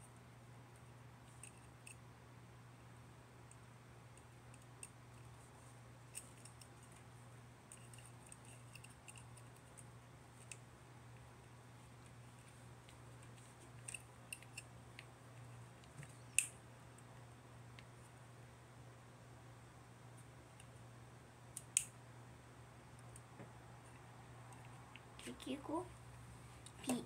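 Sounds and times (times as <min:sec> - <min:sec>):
low steady hum: 0:00.0 - 0:27.0
small plastic clicks and snips: 0:15.8 - 0:17.1, 0:21.5 - 0:22.0.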